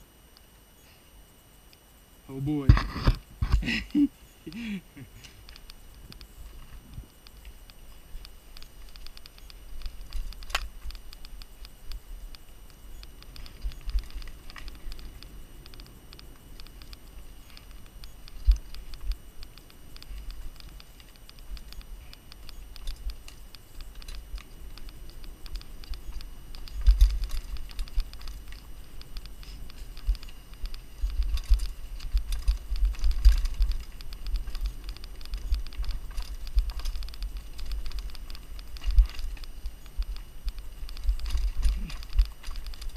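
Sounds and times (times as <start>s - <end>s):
bike clicking and rattling: 2.5s - 42.9s.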